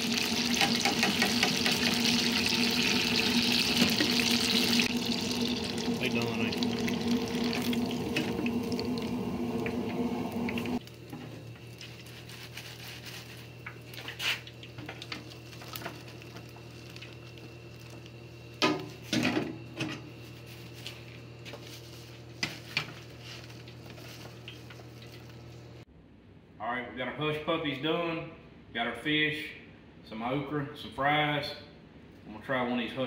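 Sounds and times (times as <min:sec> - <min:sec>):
hot oil bubbling and crackling: 0:00.0 - 0:19.2, 0:22.3 - 0:25.8
low steady hum: 0:01.9 - 0:27.0.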